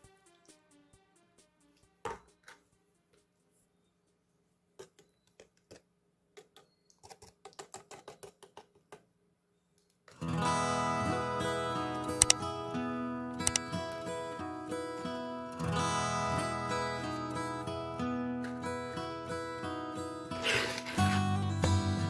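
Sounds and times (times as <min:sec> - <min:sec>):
acoustic guitar music: 0:10.2 - 0:22.0.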